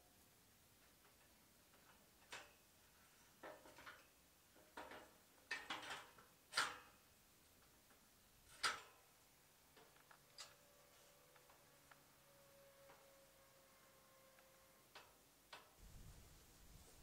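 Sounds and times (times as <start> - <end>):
knocks and clanks on metal scaffold: 3.4 - 7.0, 8.5 - 9.0.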